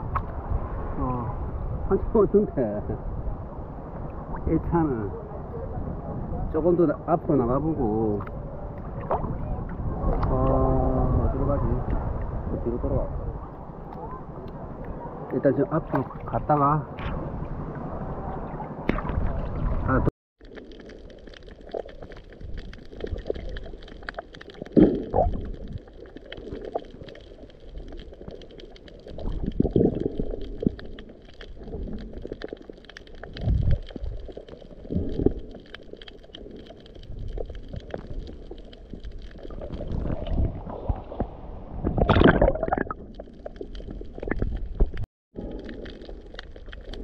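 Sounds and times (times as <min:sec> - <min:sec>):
faint steady crackle: 0:00.0 - 0:47.0
underwater whooshes and gurgles: 0:00.0 - 0:47.0.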